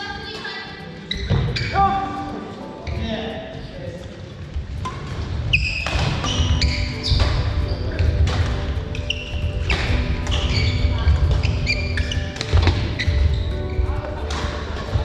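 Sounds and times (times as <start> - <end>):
shoes squeaking on sports floor: 0.3 - 2.2, 4.8 - 15.0
rackets striking shuttlecock: 4.8 - 13.4, 14.0 - 15.0.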